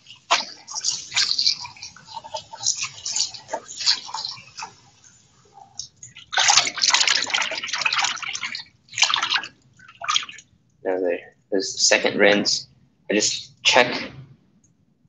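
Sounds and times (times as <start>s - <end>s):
tap water rushing: 0.0s - 10.4s
water splashing in a bowl: 0.0s - 10.5s.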